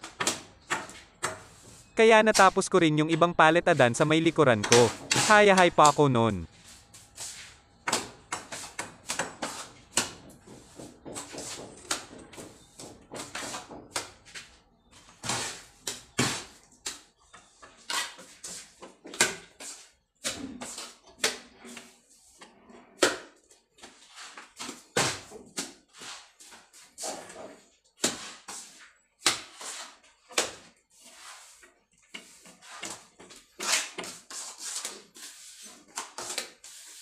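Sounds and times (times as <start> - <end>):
trowel scraping and slapping mortar: 0.0 - 2.6, 3.7 - 37.0.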